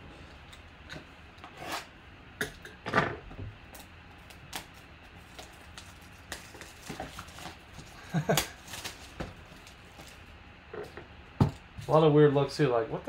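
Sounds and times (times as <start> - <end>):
plastic shrink wrap crinkling: 4.2 - 10.3.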